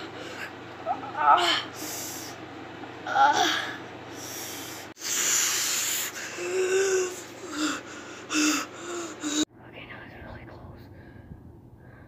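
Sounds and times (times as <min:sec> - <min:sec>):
child humming moan: 0:01.0 - 0:02.1, 0:03.0 - 0:03.8, 0:05.2 - 0:09.5
child breathing hard and gasping: 0:03.4 - 0:09.5.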